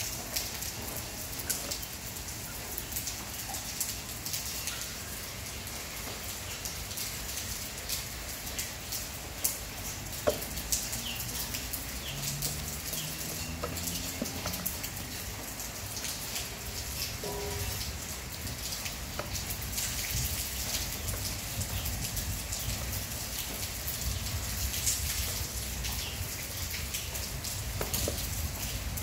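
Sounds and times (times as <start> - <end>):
rain-like crackling hiss: 0.0 - 29.0.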